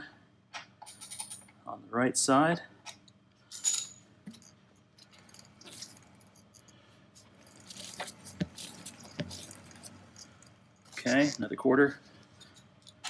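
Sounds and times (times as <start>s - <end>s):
wrench clicking and scraping: 7.4s - 11.4s.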